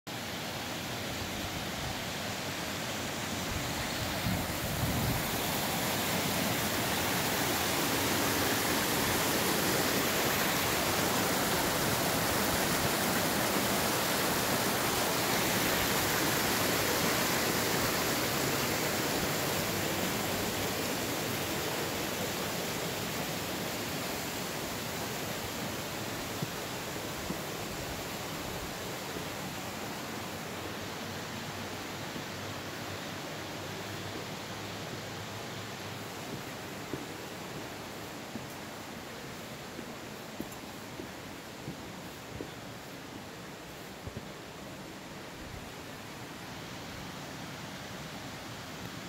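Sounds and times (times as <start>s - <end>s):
creek rushing over rocks: 0.1s - 49.0s.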